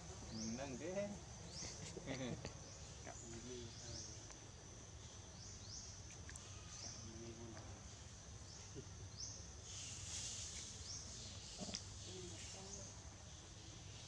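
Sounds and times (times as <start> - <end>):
insects buzzing: 0.0 - 14.0
hiss: 9.6 - 14.0.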